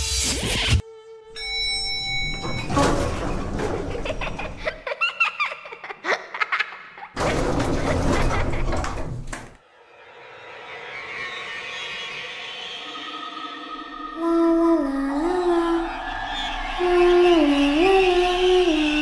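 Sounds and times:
bell-like chime: 1.4 - 2.7
elevator doors rumbling open: 2.0 - 4.7, 7.2 - 9.6.

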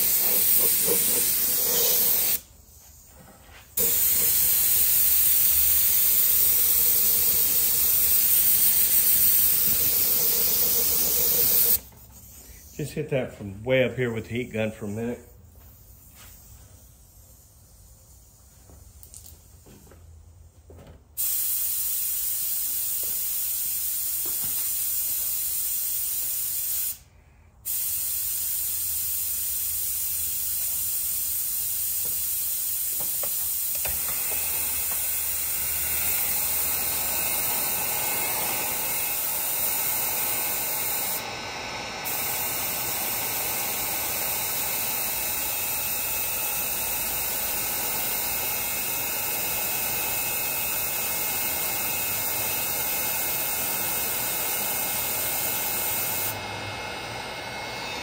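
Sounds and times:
heat gun blowing: 0.0 - 2.9, 3.8 - 13.0, 27.7 - 58.0.

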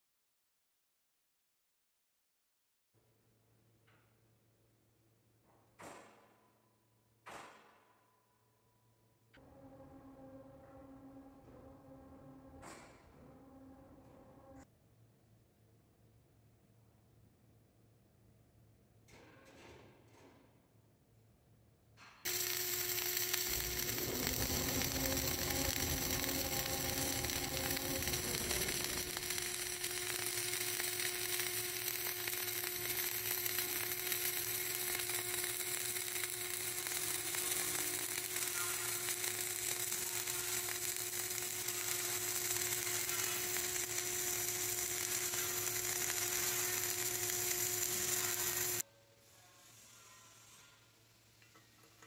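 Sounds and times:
welder hum: 22.3 - 48.8
welding arc crackling and sizzling: 22.3 - 48.8.

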